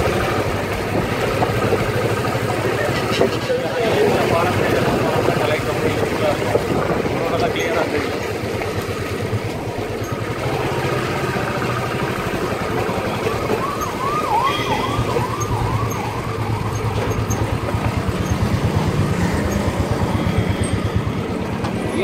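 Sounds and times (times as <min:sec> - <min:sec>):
motorcycle engine running: 0:00.0 - 0:22.0
warbling siren-like tone: 0:12.8 - 0:18.4.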